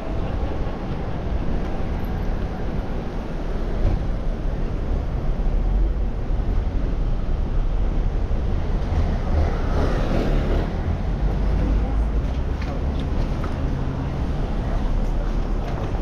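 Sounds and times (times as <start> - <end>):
street traffic: 0.0 - 16.0.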